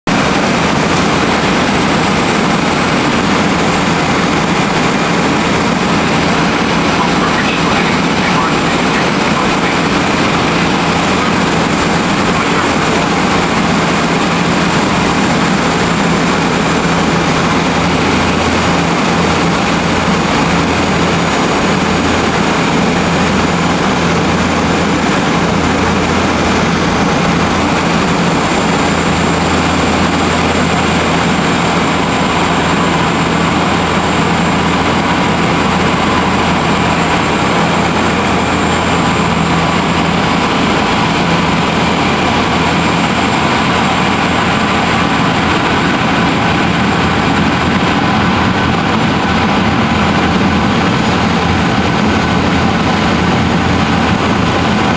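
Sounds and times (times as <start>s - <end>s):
turboprop engines droning: 0.0s - 54.9s
faint high whine: 3.4s - 23.6s.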